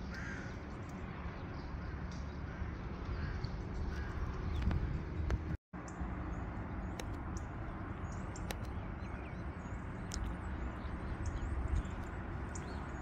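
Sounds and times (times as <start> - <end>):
distant traffic rumble: 0.0 - 13.0
wind: 0.0 - 13.0
light clicks: 8.3 - 8.8, 10.1 - 10.4.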